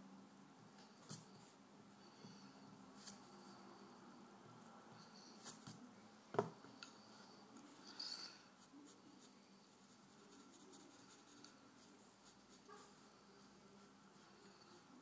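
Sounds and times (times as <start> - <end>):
pencil scratching on paper: 8.6 - 14.9.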